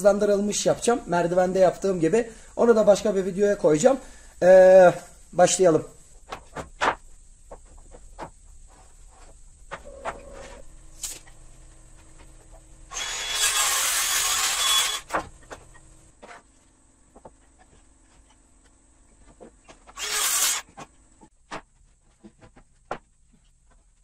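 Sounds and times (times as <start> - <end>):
circular saw cutting wood: 12.9 - 15.1, 19.9 - 20.6.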